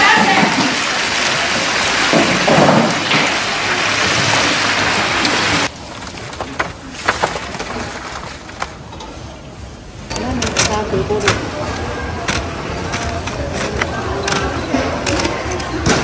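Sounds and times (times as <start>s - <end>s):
deep-frying sizzle: 0.0s - 5.7s.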